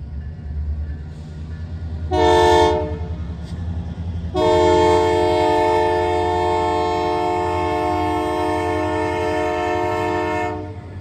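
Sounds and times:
diesel engines rumbling: 0:00.0 - 0:11.0
locomotive air horn blasts: 0:02.1 - 0:03.2, 0:04.3 - 0:10.9.

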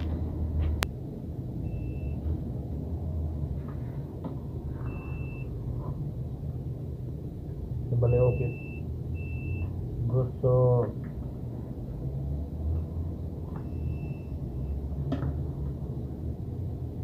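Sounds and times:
steady low hum: 0:00.0 - 0:17.0
multimeter continuity beeps: 0:01.7 - 0:02.2, 0:04.9 - 0:05.5, 0:08.0 - 0:09.7, 0:13.6 - 0:14.8.

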